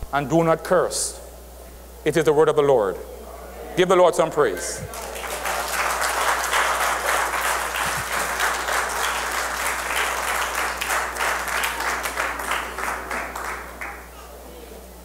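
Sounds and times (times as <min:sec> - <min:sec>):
congregation applauding: 0:04.9 - 0:14.2.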